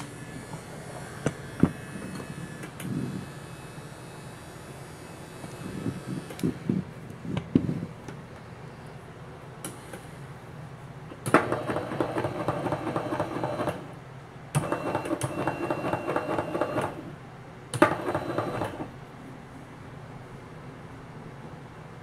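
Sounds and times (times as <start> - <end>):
electric bed motor running: 0.0 - 6.9, 11.1 - 14.0, 14.6 - 19.0.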